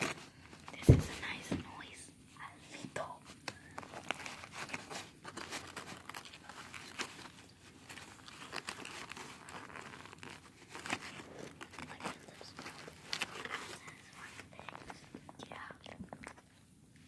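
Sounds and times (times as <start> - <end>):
foil paper wrapper crinkling: 0.0 - 1.5, 3.4 - 15.0.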